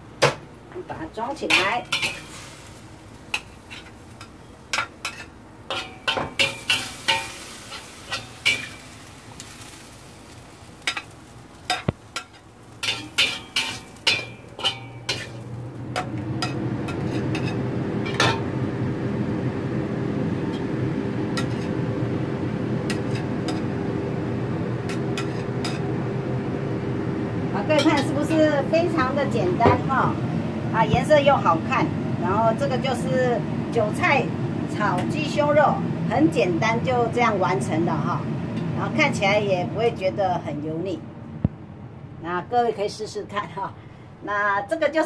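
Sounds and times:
steady low hum: 0:00.0 - 0:44.9
metal spatula scraping a wok: 0:01.4 - 0:09.8, 0:11.7 - 0:18.4, 0:21.4 - 0:21.7, 0:22.9 - 0:23.7, 0:24.9 - 0:25.8.

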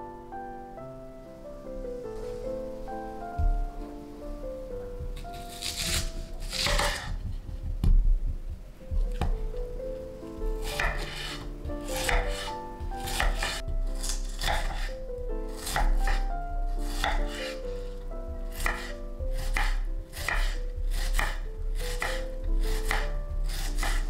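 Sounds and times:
knife chopping onion on wooden board: 0:05.2 - 0:07.2, 0:10.6 - 0:14.9, 0:15.6 - 0:17.6, 0:18.5 - 0:24.0.

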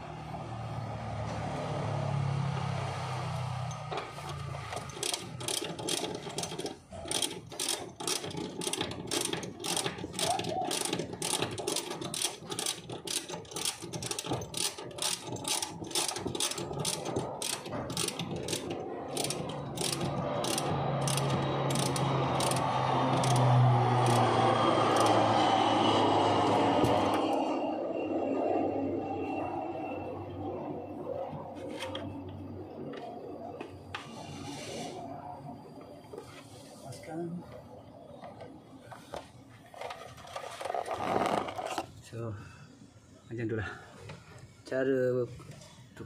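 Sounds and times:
ratchet wrench clicking: 0:04.7 - 0:25.2.

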